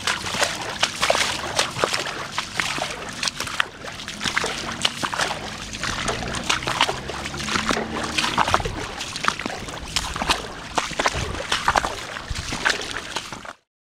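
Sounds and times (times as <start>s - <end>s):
footsteps splashing through water: 0.0s - 13.7s
falling rain: 3.2s - 12.9s.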